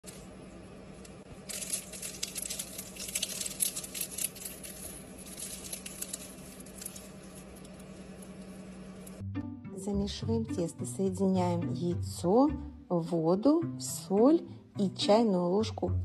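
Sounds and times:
pastry crackling as torn: 0.1 - 9.2.

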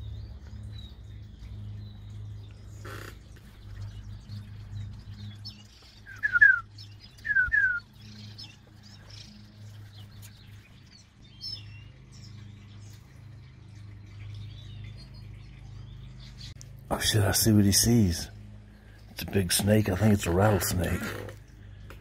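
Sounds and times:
low steady hum: 0.0 - 22.0
small birds chirping: 0.0 - 22.0
blue jay calling: 2.4 - 10.4, 16.6 - 21.9.

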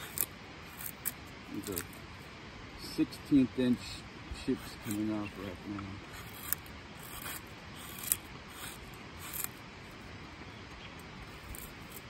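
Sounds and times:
knife slicing wood: 0.0 - 2.0, 6.1 - 9.6, 11.3 - 12.0.

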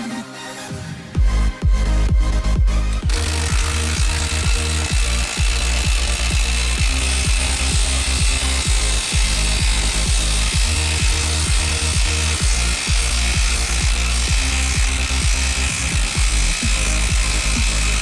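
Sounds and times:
electronic dance music: 0.0 - 18.0
impact driver hammering: 3.0 - 18.0.

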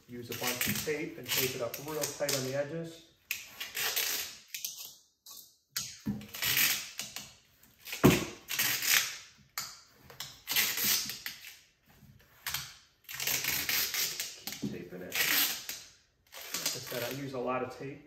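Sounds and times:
tape ripping off roll: 0.2 - 2.7, 3.3 - 4.9, 5.8 - 9.4, 10.1 - 11.7, 12.4 - 17.4.

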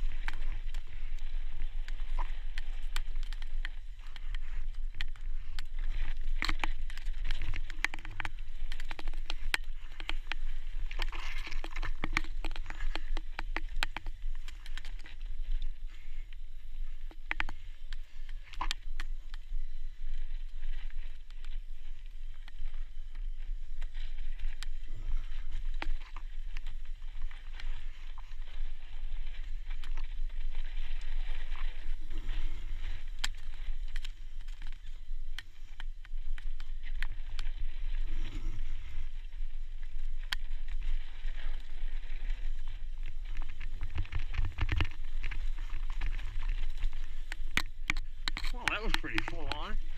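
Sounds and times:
tyres crunching over stones: 0.0 - 16.2, 39.9 - 49.9
bike rattling and clicking: 0.0 - 49.9
steady low rumble: 0.0 - 49.9.

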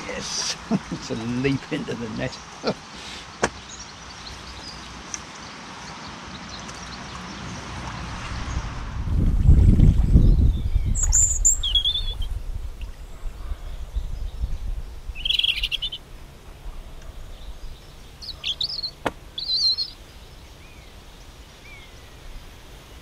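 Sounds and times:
small birds chirping: 0.0 - 8.7, 10.1 - 23.0
low microphone rumble: 8.2 - 15.3.

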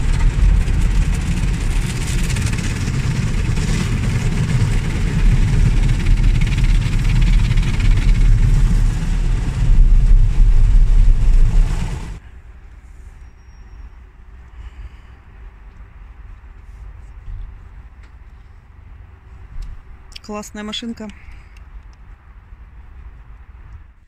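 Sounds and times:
car wash machinery rumble: 0.0 - 12.8.

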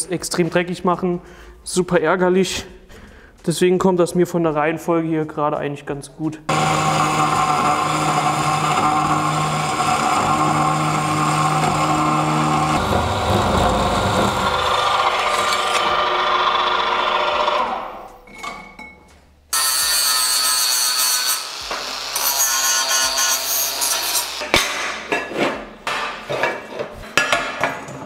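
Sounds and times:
angle grinder grinding steel: 6.5 - 18.1, 19.5 - 24.4
cold saw cutting steel tube: 6.5 - 18.1, 19.5 - 24.4.

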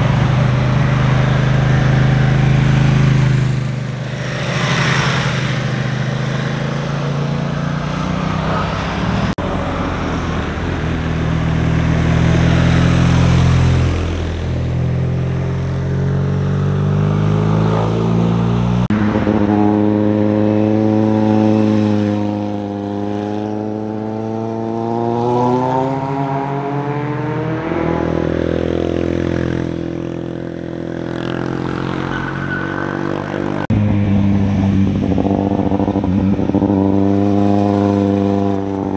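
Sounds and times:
motorcycle engines revving: 0.0 - 38.9.

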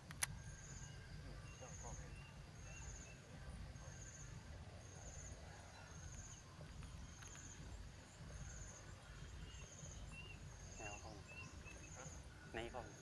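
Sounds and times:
faint clicks: 0.0 - 0.4
low wind rumble: 0.0 - 13.0.

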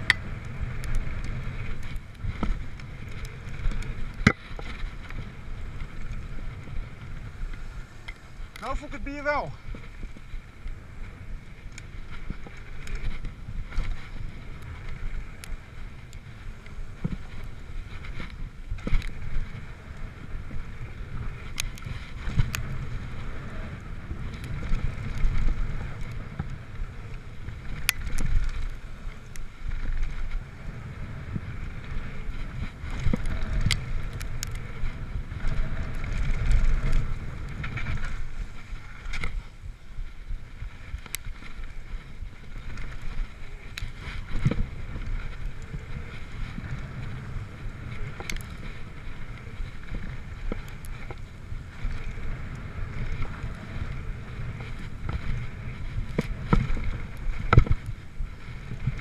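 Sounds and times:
bike clacking and rattling: 0.0 - 8.8, 9.6 - 39.5
wind on microphone: 0.0 - 59.0.

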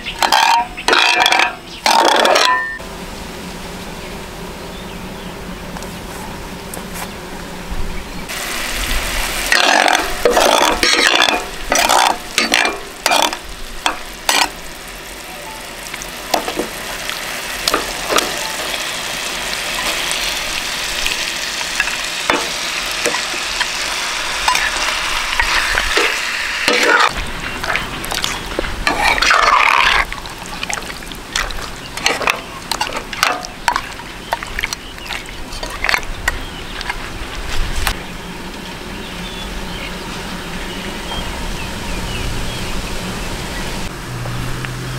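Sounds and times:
meat sizzling in a pan: 8.3 - 35.3
spatula scraping a pan: 9.5 - 14.6, 21.0 - 30.8.

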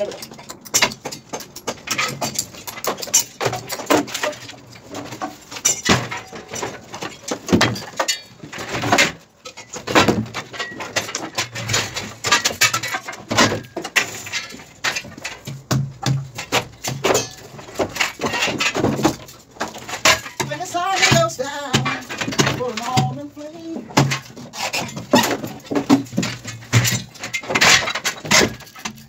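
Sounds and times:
wooden panels knocking and scraping: 0.0 - 29.0.

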